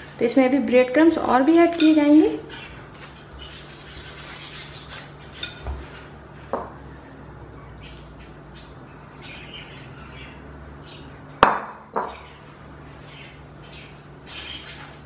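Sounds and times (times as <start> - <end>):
dishware clinking against glass bowl: 1.4 - 2.2, 5.3 - 5.8.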